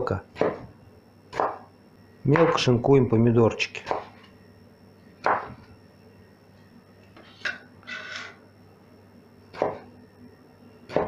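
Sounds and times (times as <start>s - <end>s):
knife scraping: 7.2s - 8.4s.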